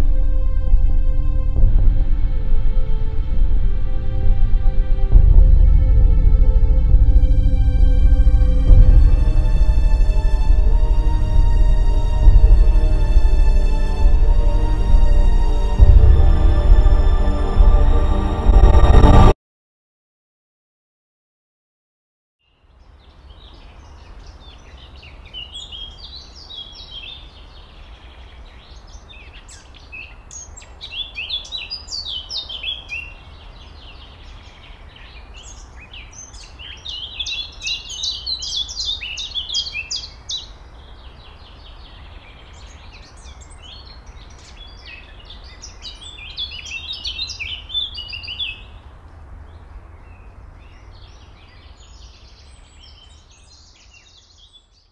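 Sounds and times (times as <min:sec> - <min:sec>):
steady low rumble: 0:00.0 - 0:19.4
songbirds chirping: 0:22.4 - 0:54.9.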